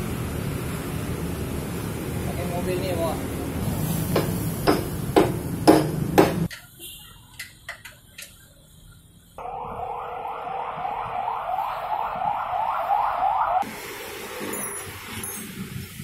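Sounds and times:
low hum with sharp knocks: 4.1s - 6.5s
electronic alarm siren whooping: 9.4s - 13.6s.

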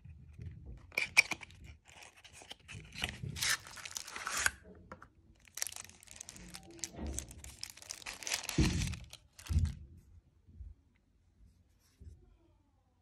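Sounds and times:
paper wrapping crinkling: 1.2s - 4.6s, 5.4s - 9.8s.

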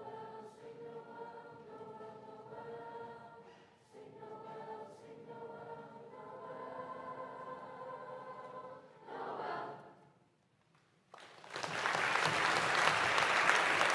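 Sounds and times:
choir singing a chord: 0.0s - 10.1s
audience applause: 11.2s - 13.9s.

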